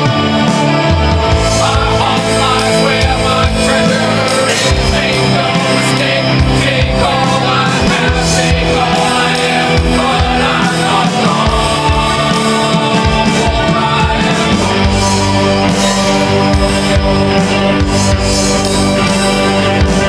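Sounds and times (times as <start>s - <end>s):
man singing rock ballad: 0.0s - 20.0s
rock band playing: 0.0s - 20.0s.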